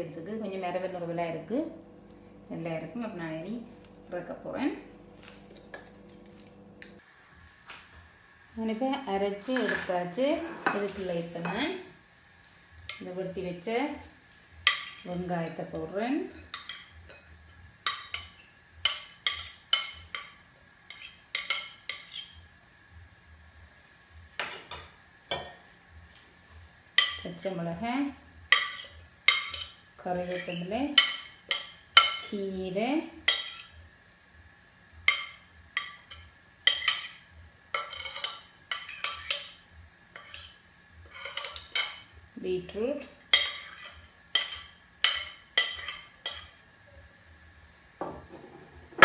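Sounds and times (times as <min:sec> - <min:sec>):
spoon clinking on plate and bowl: 0:20.9 - 0:22.4, 0:24.4 - 0:25.7, 0:28.5 - 0:32.3, 0:35.1 - 0:37.2, 0:37.8 - 0:39.6, 0:40.2 - 0:42.0, 0:43.3 - 0:46.5
metal spoon clinking on plate: 0:37.8 - 0:39.6, 0:41.1 - 0:42.0, 0:43.4 - 0:46.5.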